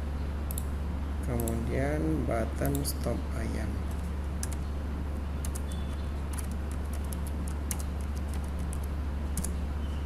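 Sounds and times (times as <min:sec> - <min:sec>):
steady low hum: 0:00.0 - 0:10.0
keyboard typing clicks: 0:00.5 - 0:00.7, 0:01.3 - 0:01.7, 0:03.9 - 0:04.6, 0:05.4 - 0:09.6.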